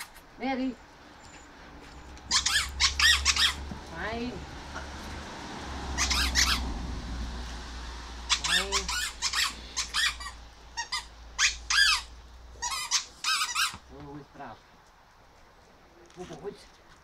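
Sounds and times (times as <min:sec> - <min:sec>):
short high-pitched squeaks: 0:01.3 - 0:03.6, 0:06.0 - 0:06.6, 0:08.3 - 0:13.8.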